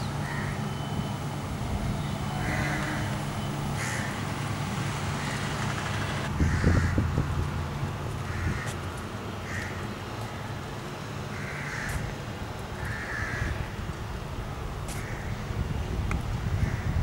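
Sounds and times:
crows cawing: 0:00.2 - 0:00.6, 0:02.4 - 0:03.2, 0:03.8 - 0:04.2, 0:05.2 - 0:05.4, 0:06.4 - 0:07.0, 0:08.2 - 0:08.8, 0:09.4 - 0:09.8, 0:11.3 - 0:12.1, 0:12.8 - 0:13.8, 0:14.9 - 0:15.4, 0:16.6 - 0:17.0.

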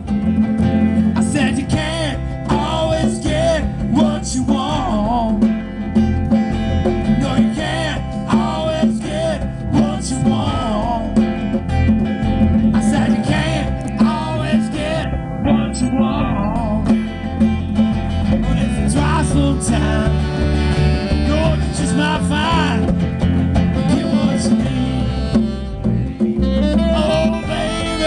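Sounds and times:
bass: 0:00.0 - 0:28.0
hand drums: 0:00.0 - 0:28.0
strummed acoustic guitar: 0:00.0 - 0:28.0
wavering lead melody: 0:04.4 - 0:28.0.

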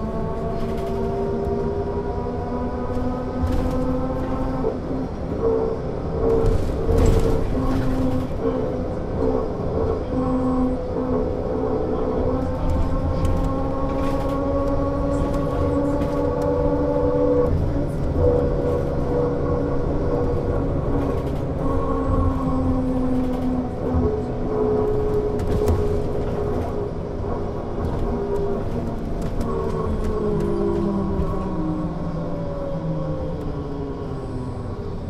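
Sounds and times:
trolleybus electric whine: 0:00.0 - 0:35.0.

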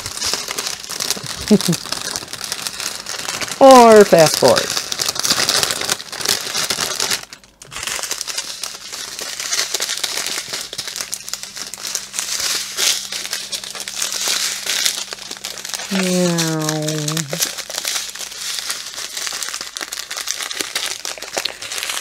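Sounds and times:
plastic bags crinkling: 0:00.0 - 0:22.0.

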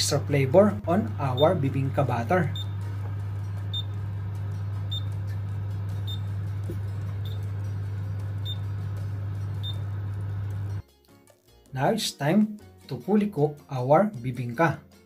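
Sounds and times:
oven fan humming: 0:00.0 - 0:10.8.

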